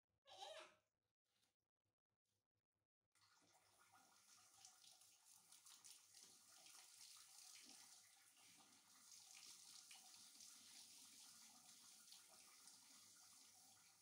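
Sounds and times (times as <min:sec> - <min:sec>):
water trickling onto tiled floor: 0:03.2 - 0:14.0.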